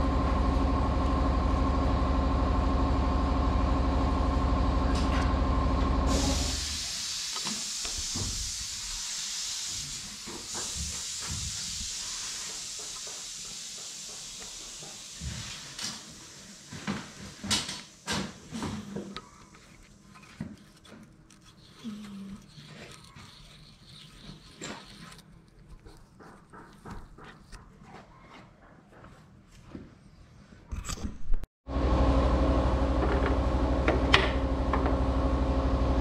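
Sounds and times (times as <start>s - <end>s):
steady hiss: 6.1s - 18.3s.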